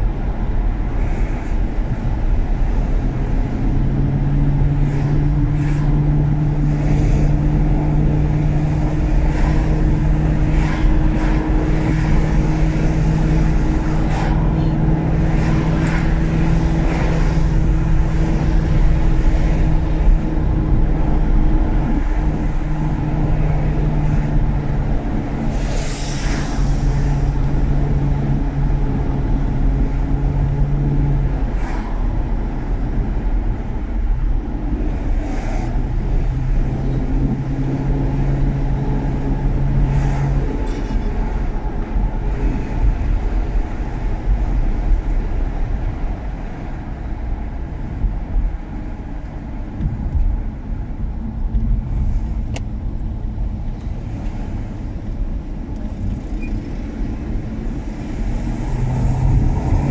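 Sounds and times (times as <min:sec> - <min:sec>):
car engine droning: 0:00.0 - 0:59.9
road noise: 0:00.0 - 0:59.9.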